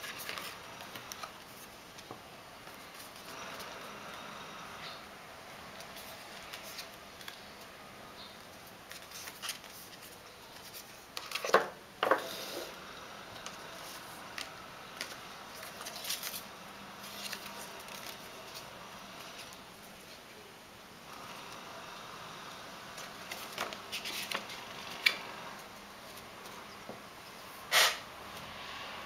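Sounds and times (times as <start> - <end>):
cardboard and paper scraping: 13.4 - 20.2, 23.0 - 26.6.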